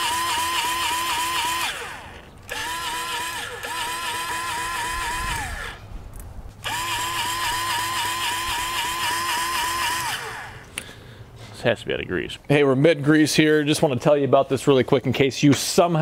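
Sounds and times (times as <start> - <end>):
electric grease gun motor whine: 0.0 - 5.9, 6.6 - 10.7.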